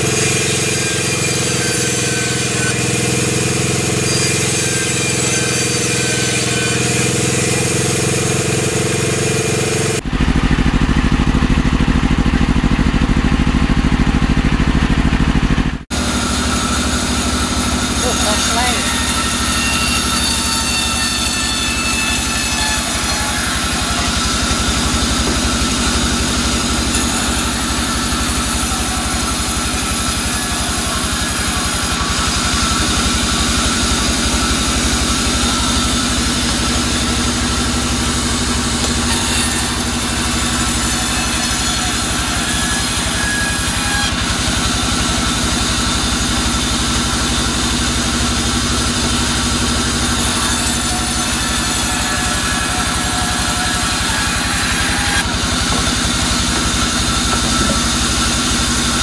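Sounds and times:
band saw cutting log: 0.0 - 59.0.

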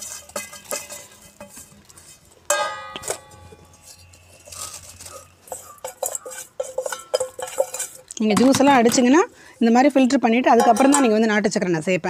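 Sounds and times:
scraping and rustling: 0.0 - 9.8
metal clink: 2.5 - 9.2.

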